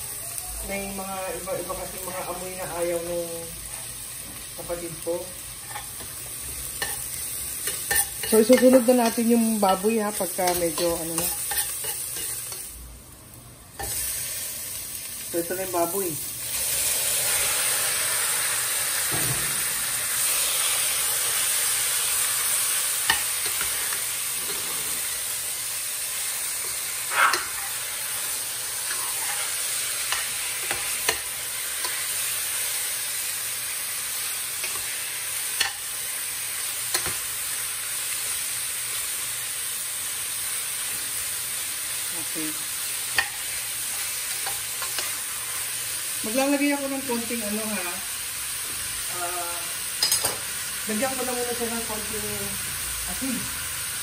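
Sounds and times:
meat sizzling in a pan: 0.0s - 54.0s
metal utensil scraping a pan: 5.6s - 6.2s, 6.8s - 12.7s, 26.6s - 32.1s.

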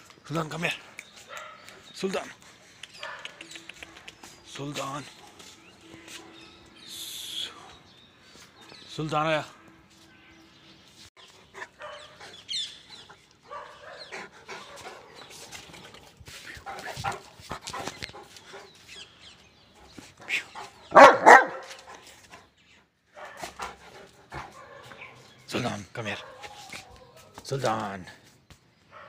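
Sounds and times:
dog barking: 11.7s - 12.2s, 13.5s - 15.2s, 20.9s - 21.8s, 23.2s - 23.6s, 24.5s - 25.2s, 26.2s - 27.2s.

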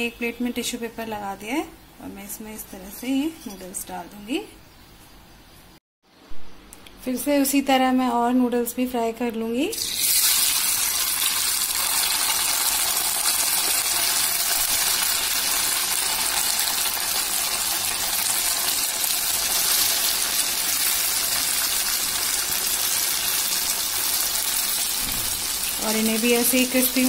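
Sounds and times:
noodles sizzling in hot oil: 9.7s - 27.0s.

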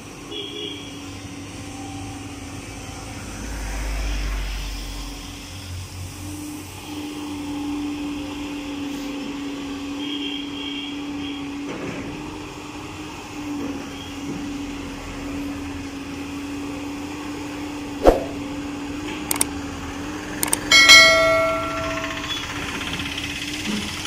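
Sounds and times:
excavator engine and hydraulics humming: 19.3s - 19.6s, 20.3s - 24.0s.

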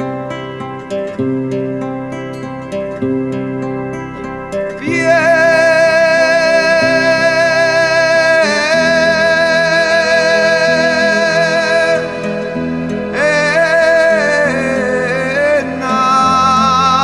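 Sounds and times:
acoustic guitar accompaniment: 0.0s - 17.0s
person singing with vibrato: 4.4s - 17.0s.

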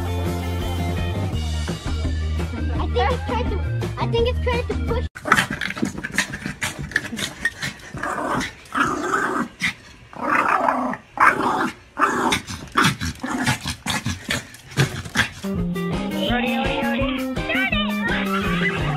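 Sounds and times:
small dog growling: 5.2s - 15.6s.

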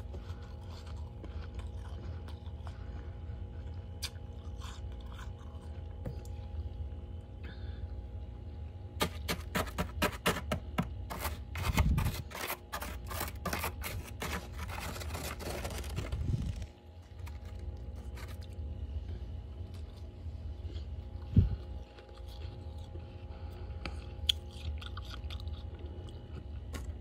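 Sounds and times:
steady low hum: 0.0s - 27.0s
fingernails scraping frost: 11.1s - 16.7s.

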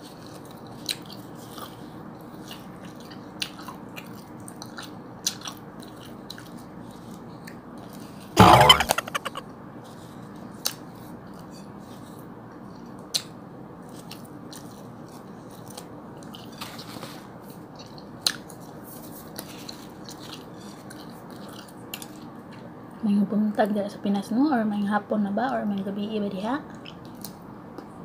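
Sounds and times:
faint chewing: 13.9s - 16.6s, 19.3s - 22.7s.

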